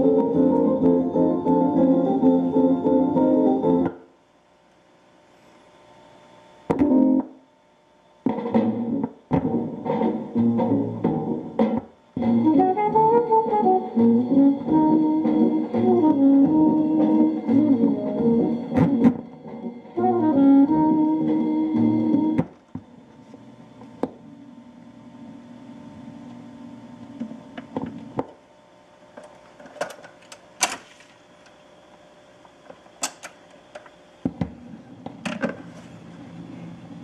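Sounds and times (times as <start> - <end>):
music from phonograph: 0.0 - 4.0, 6.7 - 7.4, 8.2 - 23.0
record changer motor hum: 0.0 - 29.6
record changer clicks and clunks: 33.0 - 34.0.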